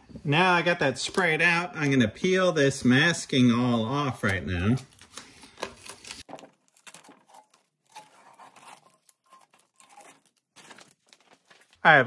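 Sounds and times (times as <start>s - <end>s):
masking tape peeling and crinkling: 4.2s - 11.8s.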